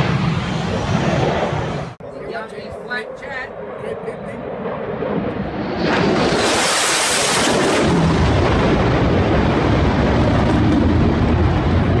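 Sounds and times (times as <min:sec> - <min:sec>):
fighter jet roar: 0:00.0 - 0:12.0.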